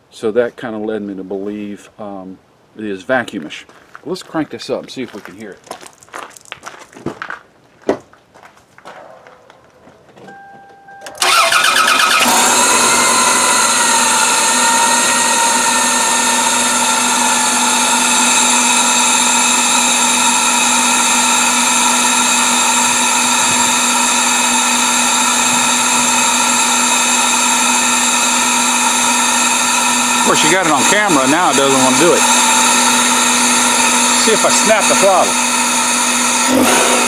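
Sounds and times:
car engine starting and idling: 10.3 - 37.0.

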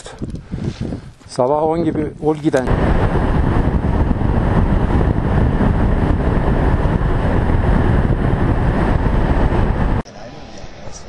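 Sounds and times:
wind rushing on microphone: 0.0 - 10.1
road noise: 2.4 - 11.0
motorcycle engine: 2.7 - 10.0.

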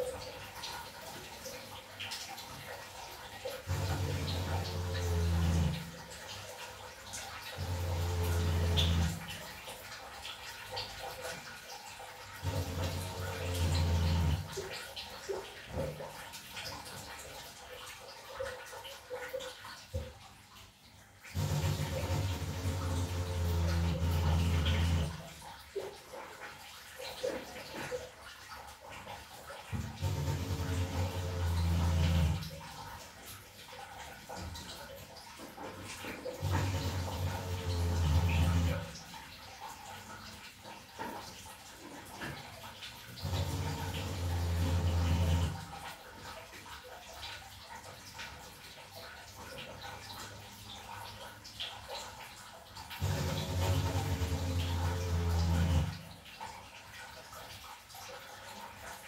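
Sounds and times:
water running and splashing: 0.0 - 59.0.

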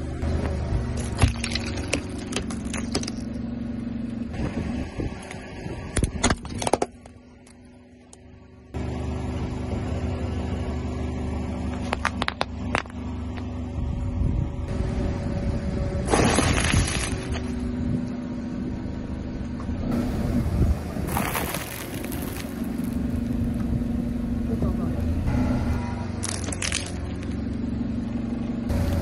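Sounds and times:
car engine running: 0.0 - 29.0
tyres crushing crunchy objects: 0.9 - 3.3, 16.1 - 17.6, 21.0 - 23.6, 26.2 - 27.4.

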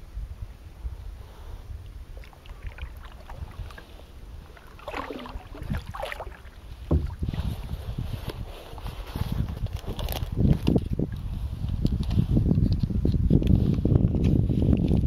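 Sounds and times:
wind rumbling on microphone: 0.0 - 15.0
water moving around boat: 1.2 - 12.8.

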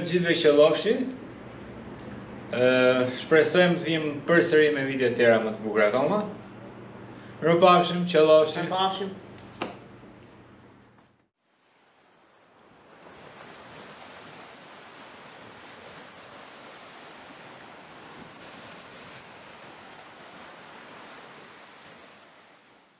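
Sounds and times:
ocean surf: 11.5 - 22.9.

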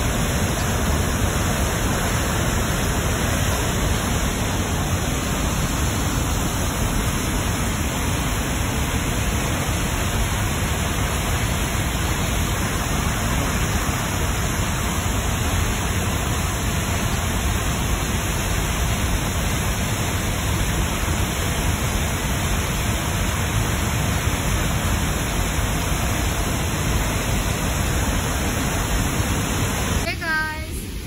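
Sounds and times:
waterfall rushing: 0.0 - 31.0.

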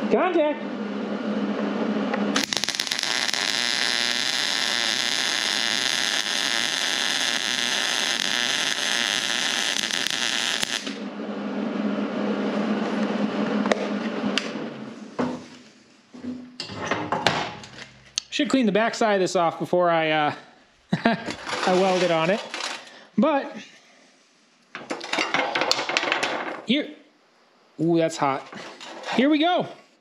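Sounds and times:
steady low hum: 0.0 - 24.7
welding arc crackling and hissing: 2.3 - 11.0.

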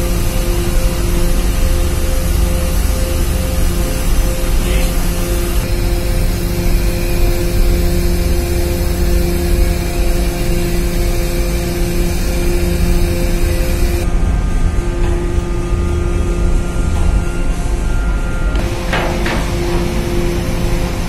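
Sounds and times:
ship machinery droning: 0.0 - 21.0.

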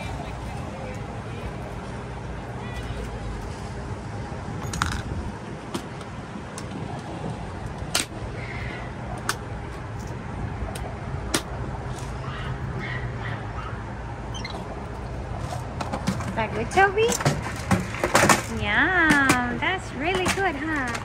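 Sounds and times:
steady low rumble: 0.0 - 16.7.

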